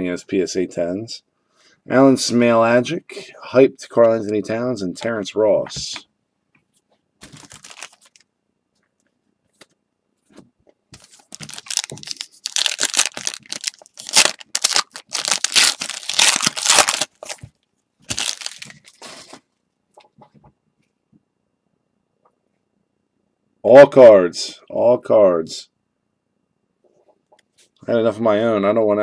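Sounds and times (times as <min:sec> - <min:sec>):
card pack wrapper tearing: 0:07.2 - 0:08.2, 0:11.0 - 0:17.5, 0:18.1 - 0:19.4.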